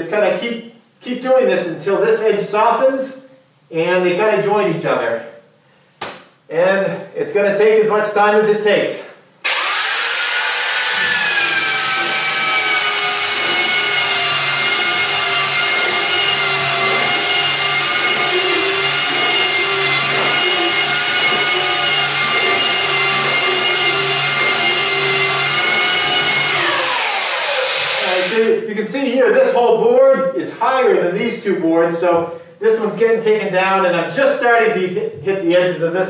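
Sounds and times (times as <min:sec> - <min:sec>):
belt sander whining on wood: 0:09.5 - 0:28.4.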